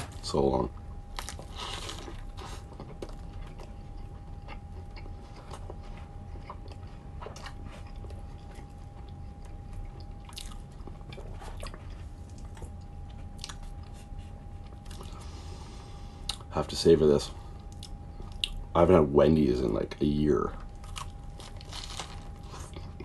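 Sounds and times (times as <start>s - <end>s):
faint constant whine: 0.0s - 23.0s
steady low hum: 0.0s - 23.0s
person chewing: 1.1s - 16.5s, 17.6s - 18.6s, 20.6s - 23.0s.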